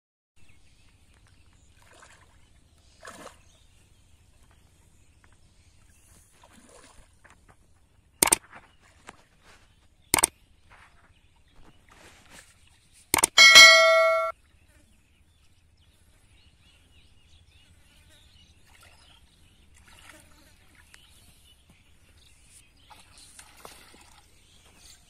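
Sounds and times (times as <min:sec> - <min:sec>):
splashing in muddy water: 0:01.6 - 0:03.7, 0:06.3 - 0:07.5, 0:18.6 - 0:21.0, 0:22.8 - 0:24.6
button click sound effects: 0:13.2 - 0:14.3.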